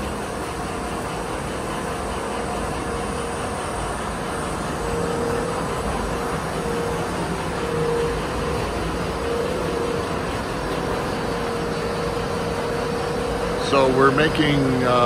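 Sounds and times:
faint steady hum: 0.0s - 15.0s
machine running mechanical rush: 0.0s - 15.0s.

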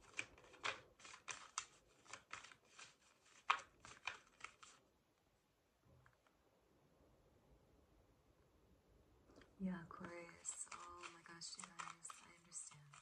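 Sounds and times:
cards being shuffled: 0.0s - 4.8s, 9.4s - 13.0s.

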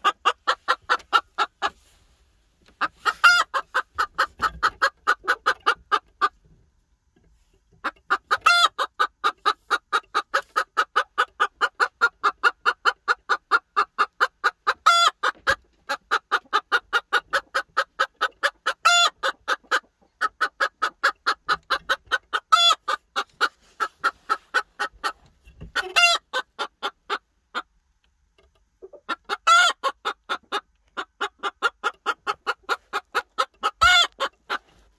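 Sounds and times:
hen clucking: 0.0s - 6.6s, 7.6s - 34.9s.

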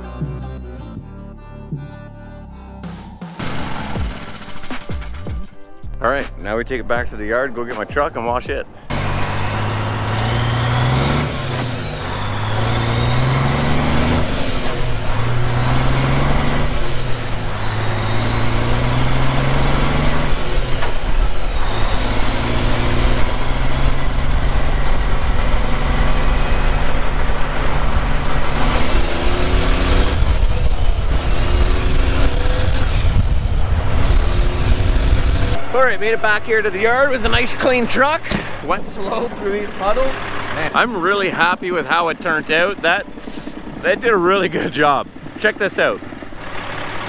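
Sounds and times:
truck diesel engine revving: 3.4s - 47.0s
wind and road noise rumble: 3.8s - 47.0s.

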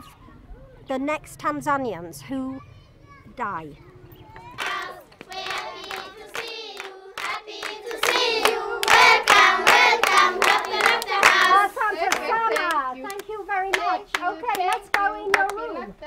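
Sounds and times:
children singing together: 4.3s - 12.2s
children clapping hands: 4.5s - 15.6s.

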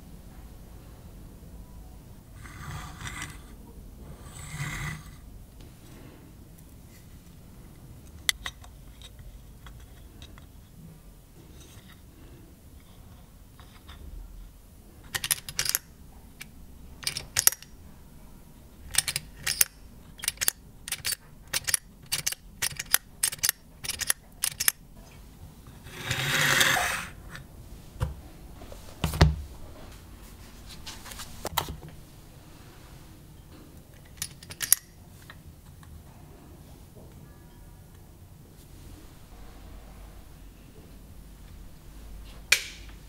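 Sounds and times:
calendar scraping across wooden desk: 25.8s - 27.2s.

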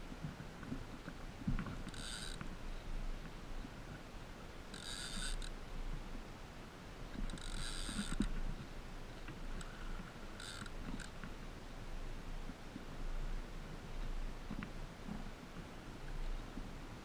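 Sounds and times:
fishing reel whirring: 1.9s - 2.4s, 4.7s - 5.5s, 7.3s - 8.2s, 10.4s - 11.1s.

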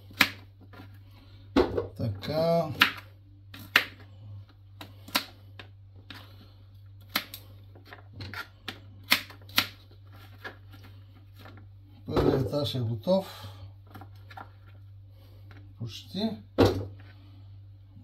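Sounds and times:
knife chopping on plastic board: 0.0s - 0.5s, 2.7s - 3.0s, 3.6s - 4.0s.

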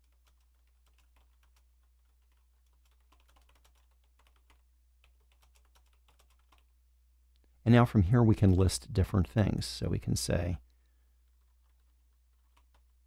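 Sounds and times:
faint keyboard typing: 0.0s - 7.6s, 10.4s - 13.0s.

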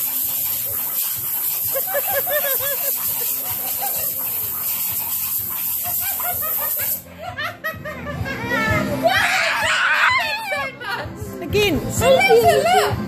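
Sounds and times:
compressed air hissing: 0.0s - 7.2s.

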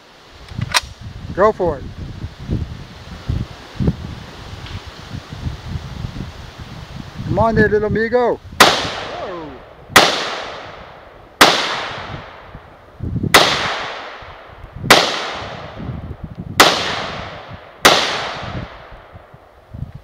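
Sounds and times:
rifle shots with echo: 8.6s - 12.5s, 13.3s - 15.8s, 16.6s - 19.1s.

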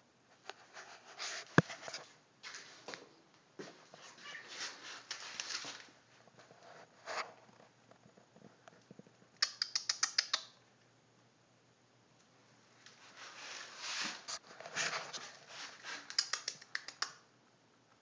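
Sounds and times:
sharp high clicks: 9.4s - 10.6s, 16.0s - 17.2s.

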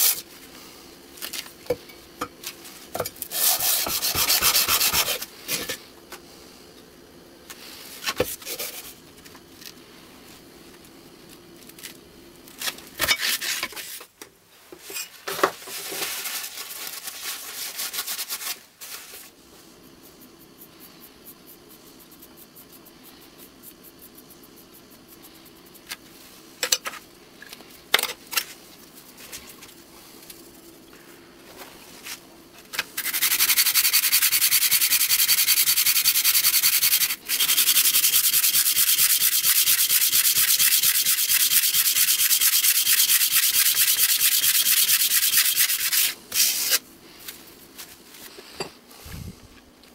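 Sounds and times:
metal sanding on abrasive paper: 0.0s - 0.2s, 3.3s - 5.3s, 16.0s - 19.2s, 33.0s - 46.8s
metal scraping on sandpaper: 0.0s - 0.2s, 3.2s - 5.3s, 15.7s - 19.3s, 33.0s - 46.8s.

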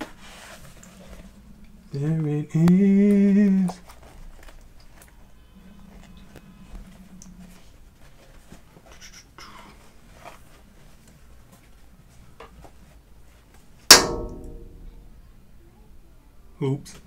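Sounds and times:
loud ringing knock: 13.9s - 15.3s.

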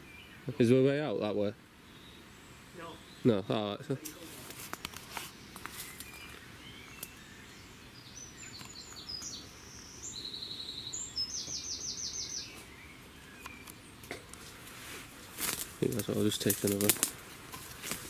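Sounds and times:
low background hiss: 0.0s - 18.0s
songbirds chirping: 0.0s - 18.0s
bird trills: 5.6s - 13.9s.

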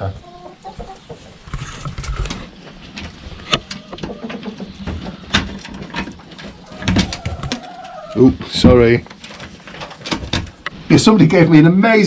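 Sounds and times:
hens clucking: 0.0s - 11.2s
knocks and rustling handling: 1.5s - 10.8s.

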